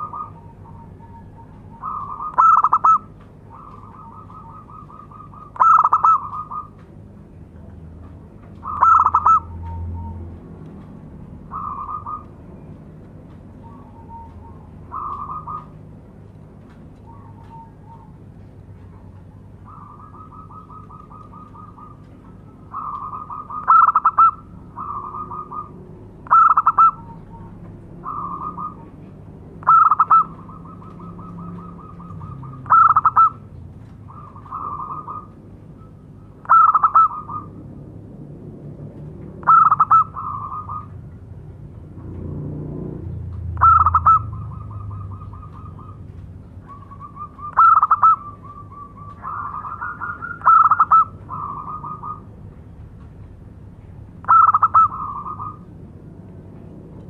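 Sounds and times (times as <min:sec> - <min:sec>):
dove cooing: 0:00.0 - 0:06.8, 0:08.6 - 0:10.2, 0:11.4 - 0:12.5, 0:13.6 - 0:15.9, 0:17.0 - 0:37.6, 0:39.4 - 0:41.1, 0:42.9 - 0:52.3, 0:54.2 - 0:55.7.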